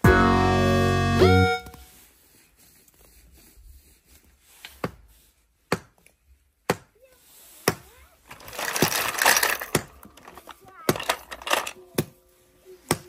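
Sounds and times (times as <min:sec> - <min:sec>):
rustling: 0:07.2 - 0:12.8.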